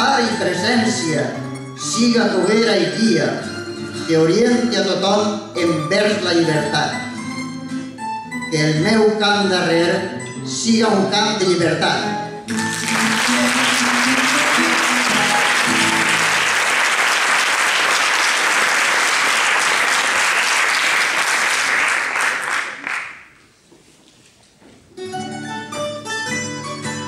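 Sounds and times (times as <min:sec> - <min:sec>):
plucked-string music: 0:11.9 - 0:16.5, 0:25.0 - 0:27.0
music ringing: 0:12.5 - 0:16.8
audience applauding: 0:12.5 - 0:23.4.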